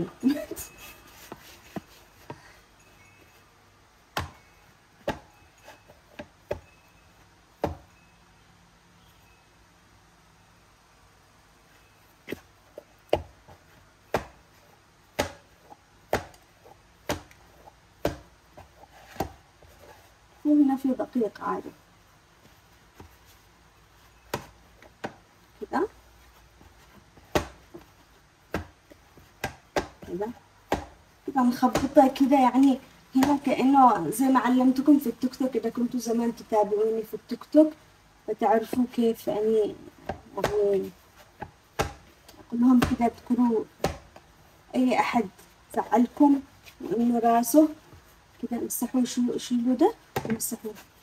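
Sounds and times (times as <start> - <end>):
dough thumps while kneading: 4.1 - 4.4, 5.0 - 6.7, 7.5 - 7.9, 12.3 - 20.0, 22.4 - 37.7, 38.3 - 51.0
dough slapped onto work surface: 15.1 - 15.5, 16.1 - 16.4, 17.0 - 17.4, 18.0 - 18.3, 27.2 - 27.9, 41.4 - 42.1.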